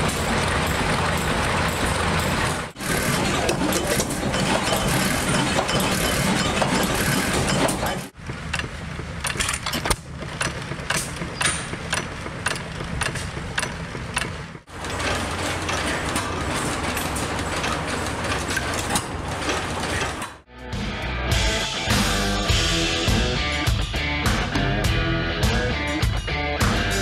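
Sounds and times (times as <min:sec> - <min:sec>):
stationary gas engine chugging: 0:00.0 - 0:20.5.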